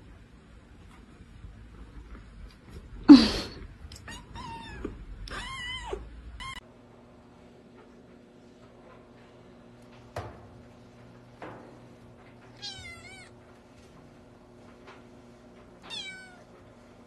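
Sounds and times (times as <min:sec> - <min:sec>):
steady low hum: 0:00.0 - 0:17.0
cat meowing: 0:04.0 - 0:06.6, 0:12.6 - 0:13.4, 0:15.9 - 0:16.5.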